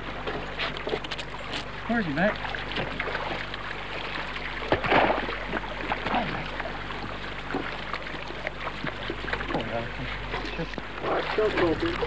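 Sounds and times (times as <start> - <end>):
steady low hum: 0.0 - 12.0
water sloshing and splashing: 0.0 - 12.0.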